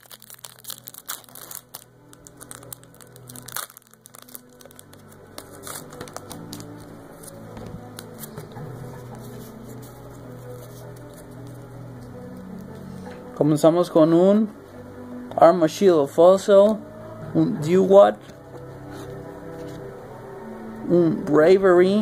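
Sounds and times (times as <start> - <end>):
foil wrapper crinkling and tearing: 0.0 - 8.3
background music: 0.0 - 22.0.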